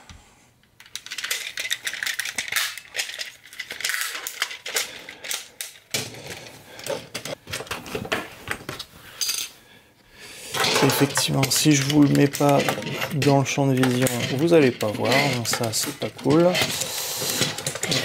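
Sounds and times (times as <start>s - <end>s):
plastic joints clicking and rattling: 0.7s - 8.8s, 10.5s - 18.0s
plastic rubbing against a surface: 10.5s - 18.0s.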